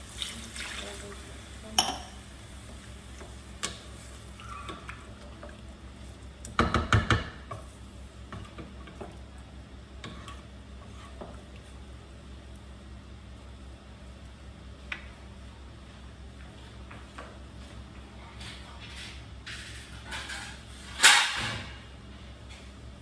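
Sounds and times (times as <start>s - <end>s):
wooden spatula stirring in pot: 2.4s - 12.8s
spatula knocking against pot: 6.5s - 7.6s.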